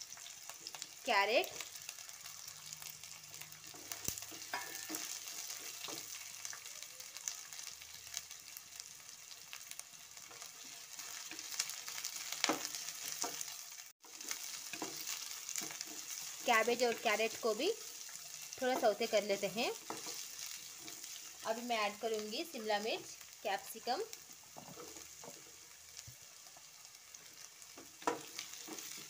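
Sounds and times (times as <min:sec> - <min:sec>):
vegetables sizzling in hot oil: 0:00.0 - 0:29.0
wooden spatula scraping a pan: 0:19.8 - 0:21.4, 0:24.4 - 0:26.2, 0:27.8 - 0:29.0.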